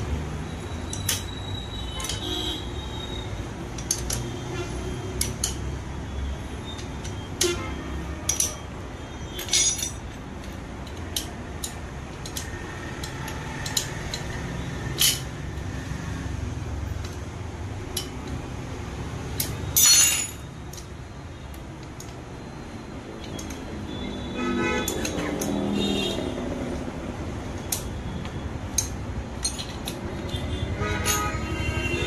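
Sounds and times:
metallic clinks of hand tools: 0.8s - 2.9s, 8.2s - 8.7s, 9.3s - 10.2s, 19.3s - 20.9s
metal clatter: 6.8s - 8.7s, 9.3s - 10.2s, 13.6s - 15.4s, 19.4s - 20.8s.

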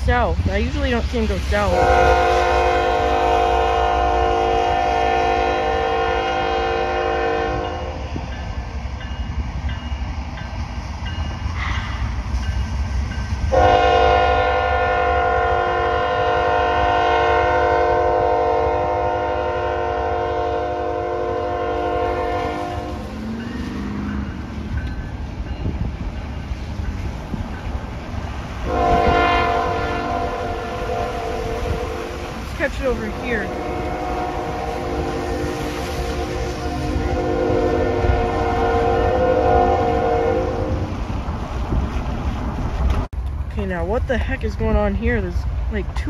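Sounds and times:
passing train rumble: 0.0s - 46.0s
locomotive air horn blasts: 1.7s - 8.1s, 13.5s - 23.2s, 28.6s - 40.9s.

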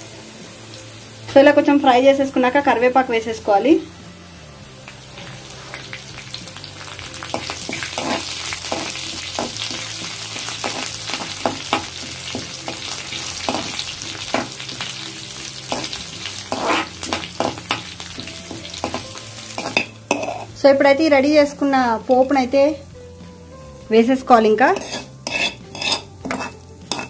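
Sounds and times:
food sizzling in hot oil: 0.0s - 27.0s
steel spoon scraping a pan: 7.2s - 20.6s, 24.6s - 27.0s.

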